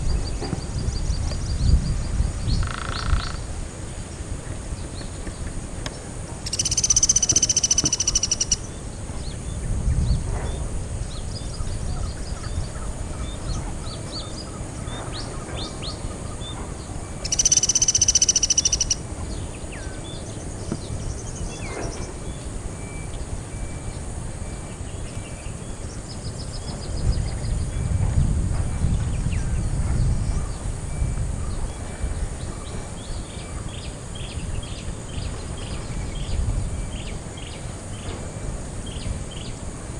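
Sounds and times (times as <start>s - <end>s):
woodpecker buzzy trilling call: 2.5s - 3.5s, 6.4s - 8.7s, 17.1s - 19.1s.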